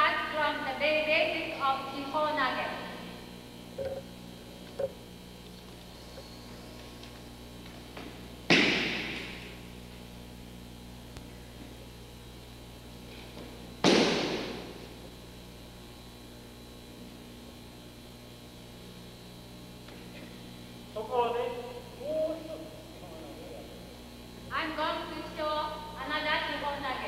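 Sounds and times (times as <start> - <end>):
mains hum: 0.0 - 27.0
heavy thuds on a mat: 13.8 - 14.7.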